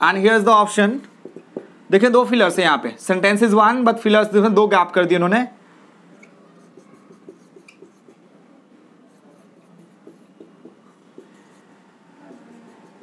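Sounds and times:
marker squeaking on whiteboard: 1.1s - 1.7s, 6.2s - 8.2s, 9.1s - 13.0s.

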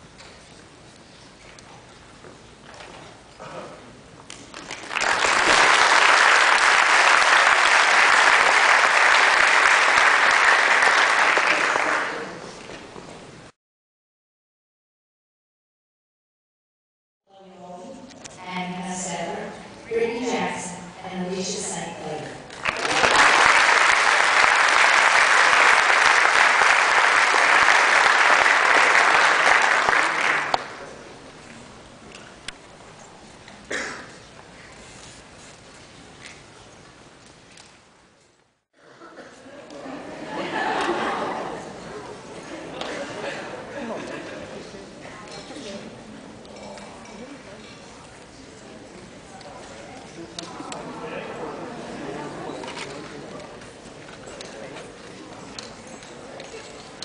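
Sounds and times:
audience applauding: 4.5s - 12.6s, 22.5s - 30.9s.

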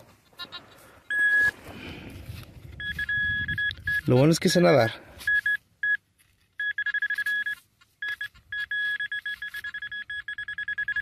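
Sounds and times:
rapid high electronic beeps: 6.6s - 11.0s.

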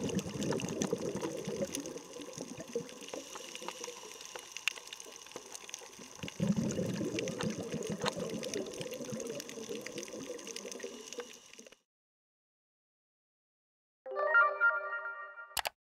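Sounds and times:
underwater clicks and crackles: 0.0s - 11.8s.

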